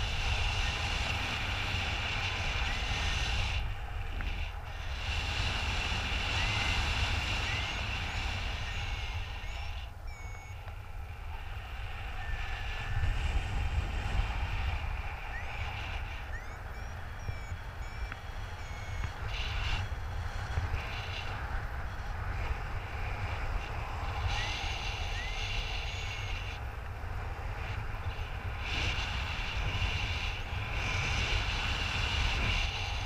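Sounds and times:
wind buffeting microphone: 0:00.0 - 0:33.0
high chirps: 0:06.4 - 0:10.6, 0:15.2 - 0:19.6, 0:24.3 - 0:26.4
short beeps: 0:07.4 - 0:10.6, 0:12.2 - 0:12.8, 0:15.2 - 0:19.6, 0:24.4 - 0:26.5.

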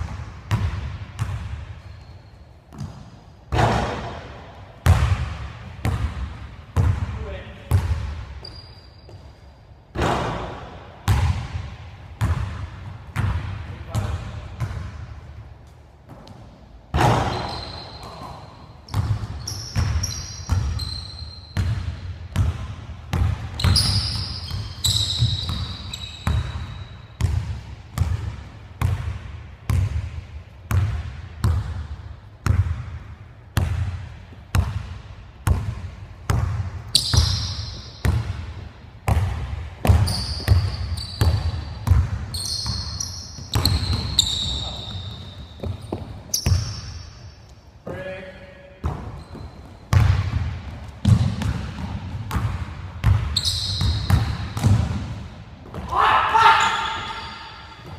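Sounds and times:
sneaker squeaks: 0:01.7 - 0:03.9, 0:08.3 - 0:10.2, 0:16.1 - 0:22.0, 0:23.4 - 0:27.4, 0:36.8 - 0:38.4, 0:39.8 - 0:47.8, 0:48.8 - 0:51.9, 0:53.1 - 0:54.8, 0:55.8 - 0:57.9
basketball bouncing on wooden floor: 0:21.6 - 0:29.1, 0:35.5 - 0:46.9, 0:48.8 - 0:55.9.

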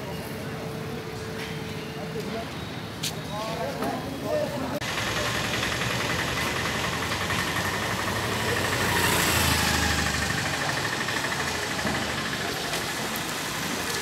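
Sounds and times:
street traffic: 0:00.0 - 0:14.0
motorbike engine passing: 0:04.8 - 0:14.0.

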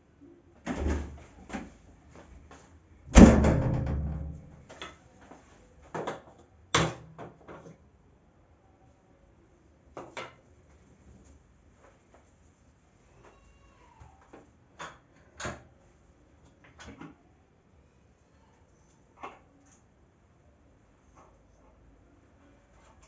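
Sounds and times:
heavy ringing knock: 0:03.2 - 0:04.6.

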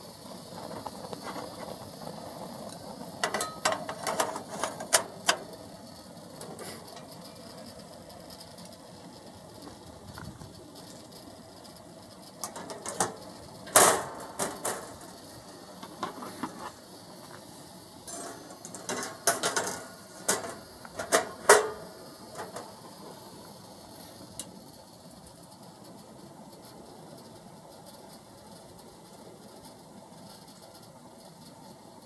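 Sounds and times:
metal clanks and rattles: 0:03.2 - 0:05.6, 0:12.4 - 0:16.8, 0:18.0 - 0:23.1.

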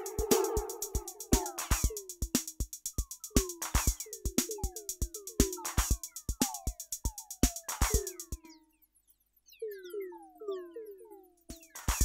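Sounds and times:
electronic drum loop with metallic ring: 0:00.0 - 0:08.6, 0:11.5 - 0:12.0.

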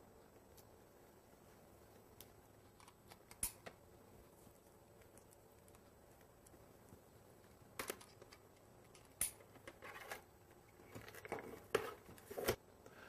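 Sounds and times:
phone cords and plugs handled: 0:07.7 - 0:12.6.

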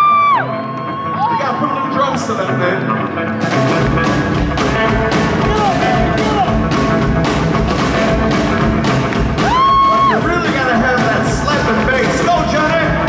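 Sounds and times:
drums: 0:00.0 - 0:13.0
electric guitar riff: 0:00.0 - 0:13.0
deep bass: 0:02.5 - 0:13.0.

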